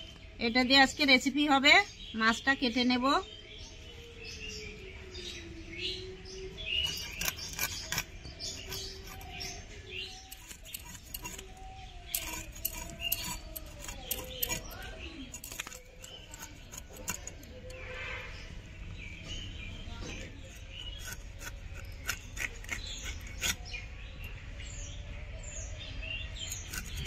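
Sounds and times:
birds chirping: 0.0 - 27.0
blade scraping fish: 6.7 - 18.4, 20.1 - 23.9, 26.4 - 27.0.

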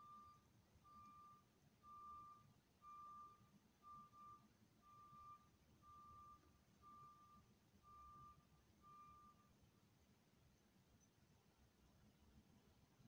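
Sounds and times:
reverse alarm beeping: 0.0 - 9.5.

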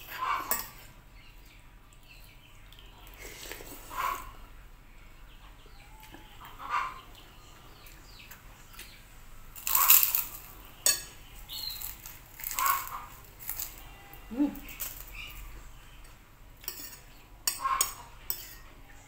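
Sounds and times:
crunching cracker: 9.5 - 10.6, 11.4 - 14.0, 14.6 - 15.4.

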